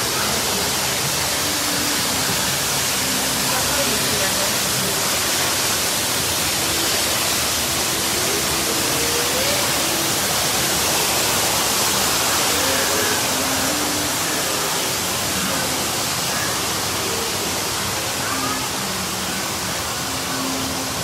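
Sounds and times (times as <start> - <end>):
waterfall rushing and splashing: 0.0 - 21.0.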